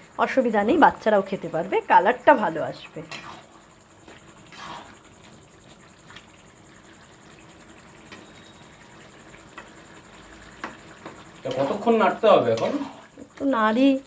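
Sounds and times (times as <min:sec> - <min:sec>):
spatula stirring: 0:03.1 - 0:13.4
gravy bubbling: 0:03.2 - 0:14.0.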